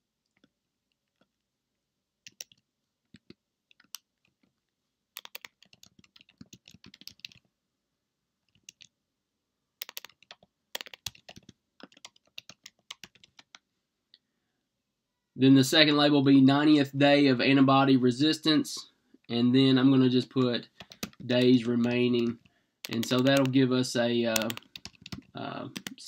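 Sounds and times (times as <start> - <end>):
faint typing on keyboard: 2.2 - 7.5, 8.4 - 9.0, 9.8 - 13.7, 20.3 - 26.0.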